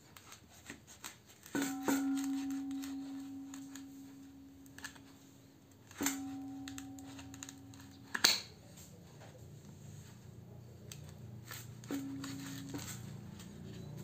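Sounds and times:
ringing metal tone: 0:01.6 - 0:08.6, 0:11.8 - 0:14.0.

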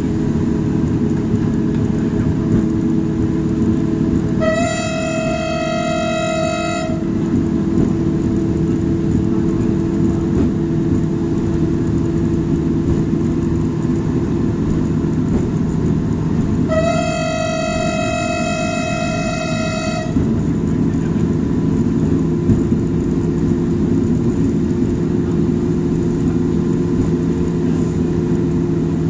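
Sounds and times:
train rumbling along track: 0:00.0 - 0:29.0
train warning horn: 0:03.7 - 0:07.9, 0:16.6 - 0:20.4.

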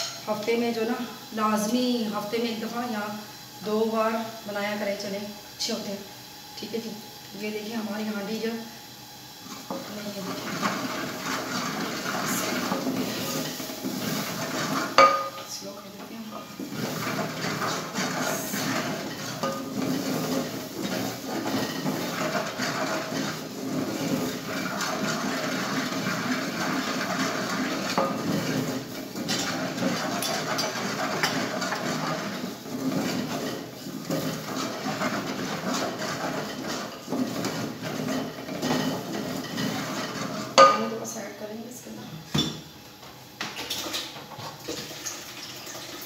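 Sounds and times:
spoon scraping metal pot: 0:16.3 - 0:41.0.

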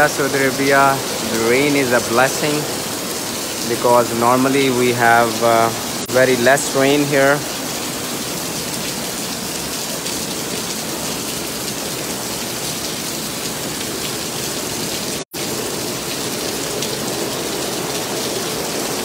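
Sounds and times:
heavy rain on pavement: 0:00.0 - 0:19.0.

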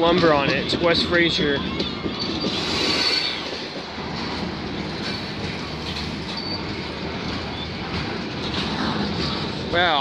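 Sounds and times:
train wheels on rails: 0:00.0 - 0:10.0
high wheel squeals: 0:01.4 - 0:03.8, 0:06.2 - 0:06.9.

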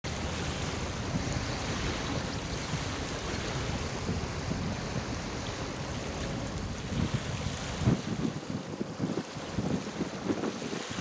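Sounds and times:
small waves lapping: 0:00.0 - 0:11.0
wind buffeting microphone: 0:00.1 - 0:11.0.

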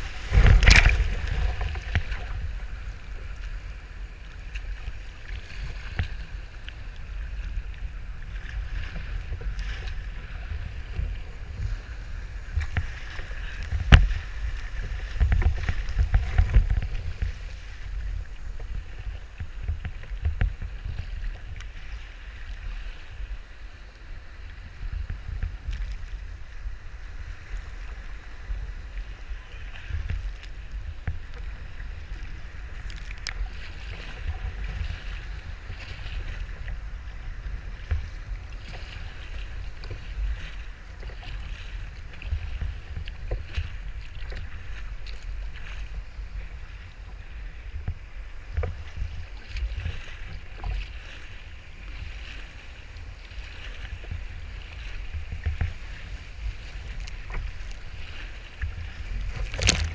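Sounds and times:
wind buffeting microphone: 0:00.0 - 0:23.4
sea water washing and splashing: 0:00.0 - 0:59.9.

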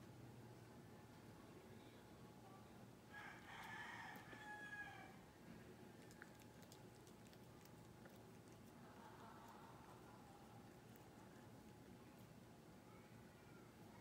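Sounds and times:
faint rooster crowing: 0:03.1 - 0:05.3.

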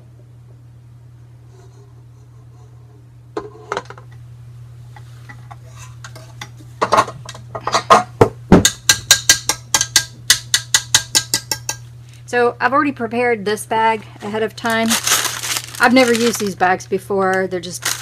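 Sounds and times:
whisk clicking against metal bowl: 0:08.9 - 0:11.8.

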